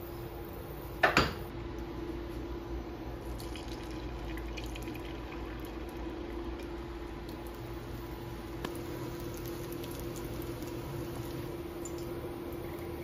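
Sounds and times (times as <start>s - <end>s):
steady hum: 0.0s - 13.0s
faint drips: 8.6s - 13.0s.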